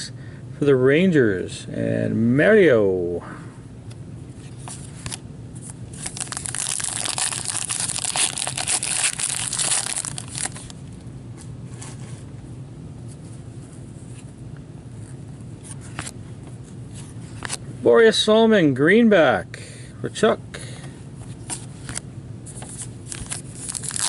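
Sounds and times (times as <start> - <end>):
wrapper tearing and crinkling: 6.0 - 10.8, 23.1 - 24.0.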